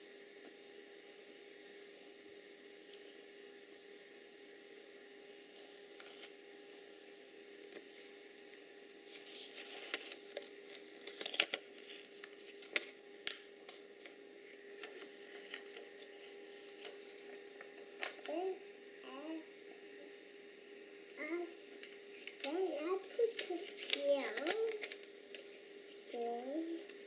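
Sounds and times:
paper rustling and tearing: 5.4s - 6.8s, 9.0s - 18.3s, 22.1s - 27.0s.

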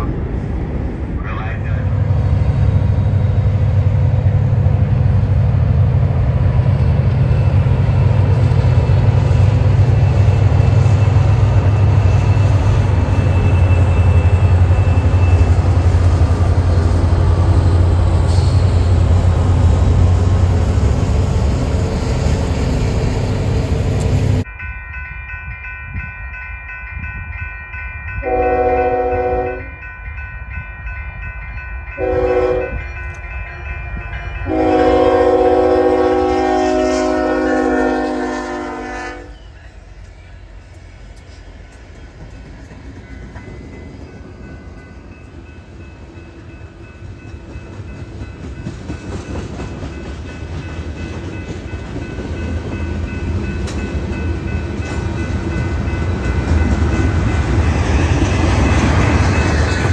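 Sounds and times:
diesel locomotive engine rumble: 0.0s - 59.9s
distant locomotive horn blast: 28.2s - 29.7s, 32.0s - 32.8s, 34.4s - 39.5s.

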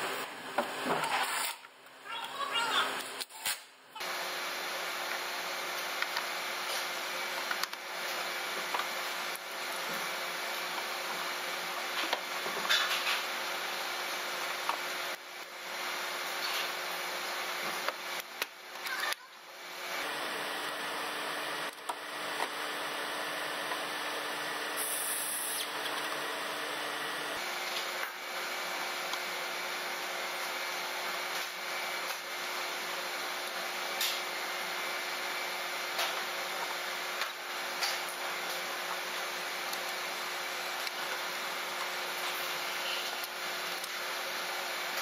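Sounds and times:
workshop background noise: 0.0s - 45.0s.

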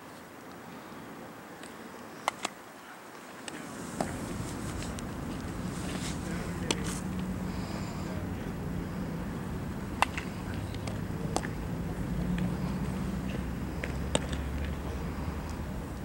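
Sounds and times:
baseball bat cracks: 10.0s - 11.6s, 13.3s - 14.7s.

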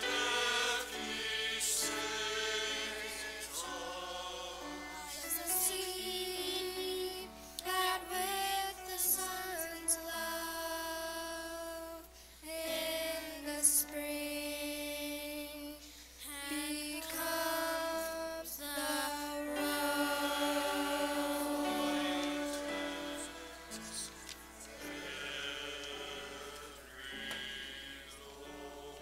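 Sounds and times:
church choir singing: 0.0s - 29.0s
singers breathing: 12.0s - 12.5s, 15.8s - 16.2s.

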